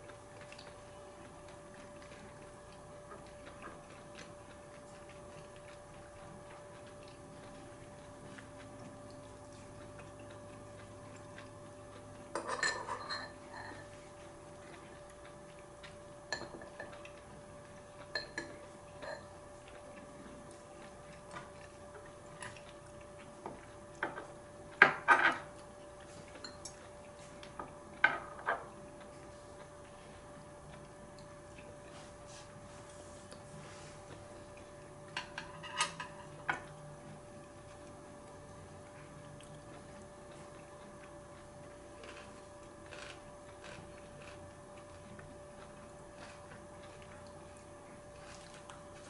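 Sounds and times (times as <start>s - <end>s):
cutlery clinking on ceramic bowl: 12.3s - 13.9s, 16.3s - 17.0s, 18.1s - 19.3s, 24.8s - 25.5s, 35.2s - 36.7s.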